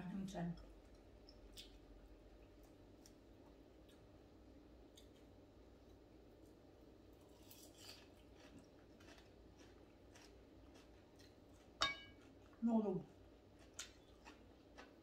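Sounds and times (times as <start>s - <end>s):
person chewing: 4.9s - 12.6s, 13.2s - 15.0s.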